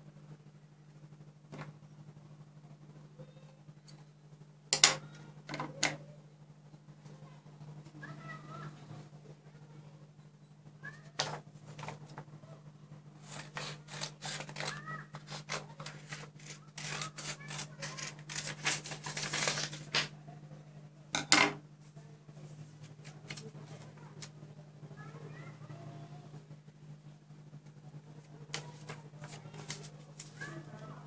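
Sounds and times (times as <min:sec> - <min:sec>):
paper rustling: 0:11.2 - 0:12.2, 0:13.2 - 0:20.1, 0:28.2 - 0:30.7
scissors snipping paper: 0:13.2 - 0:20.1.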